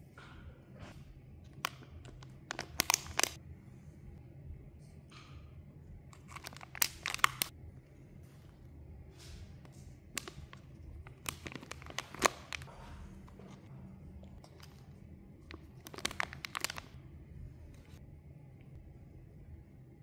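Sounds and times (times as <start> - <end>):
plastic pouches crinkling: 1.6 - 3.4, 6.2 - 7.5, 10.1 - 13.6, 14.3 - 17.0
paper bag rustling: 10.2 - 13.6, 15.5 - 17.0.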